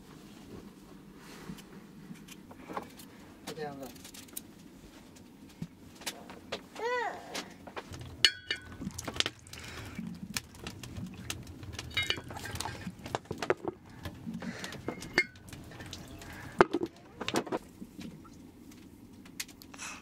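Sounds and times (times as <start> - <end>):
water trickling and splashing: 7.9 - 18.5.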